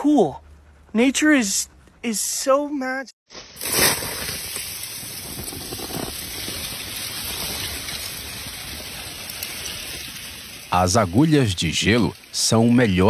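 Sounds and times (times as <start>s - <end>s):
ice crackling and clinking: 3.6s - 13.0s.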